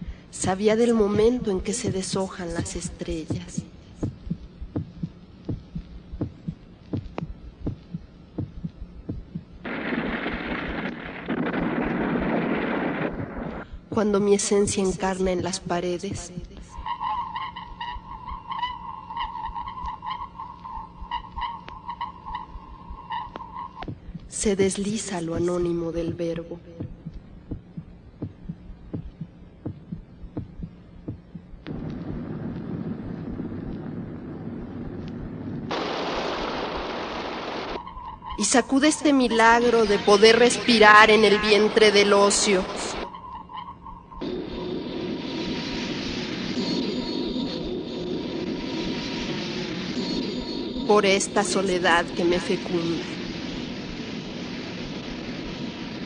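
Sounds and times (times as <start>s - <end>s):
dense low rumble: 0.0s - 16.8s, 20.6s - 38.4s
low heartbeat-like thumps: 0.0s - 16.9s, 20.9s - 36.9s
steady low hum: 0.0s - 56.0s.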